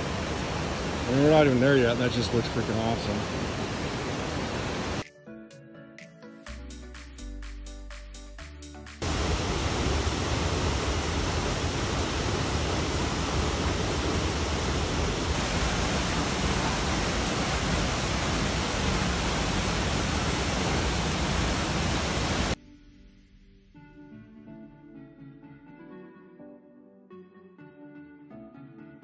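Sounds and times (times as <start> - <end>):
waterfall rushing: 0.0 - 5.0, 9.0 - 22.6
quiet background music: 22.6 - 29.0.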